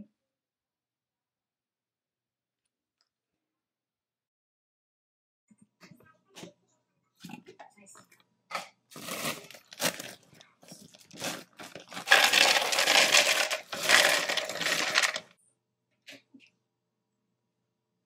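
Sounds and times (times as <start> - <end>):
plastic bag crinkling: 9.0 - 15.3
frozen fruit clattering into blender: 11.0 - 15.3.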